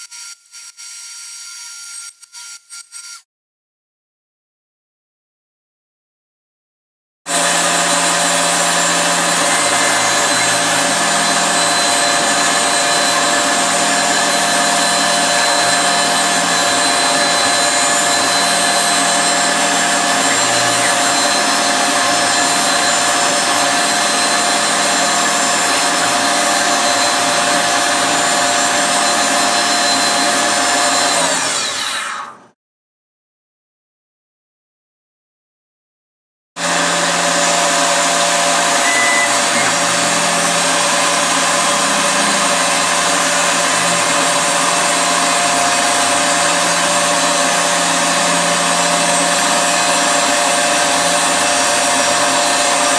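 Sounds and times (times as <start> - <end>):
milling spindle whining: 7.3 - 31.9, 36.7 - 52.9.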